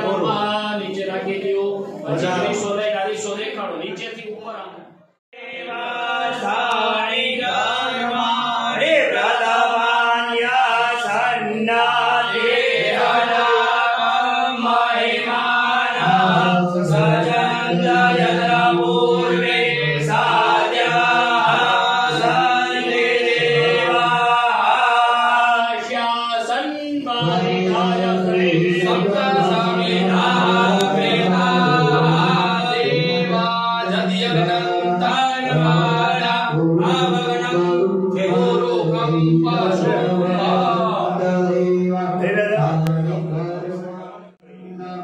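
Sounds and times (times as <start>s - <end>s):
mantra chanting: 0.0s - 3.4s, 5.4s - 45.0s.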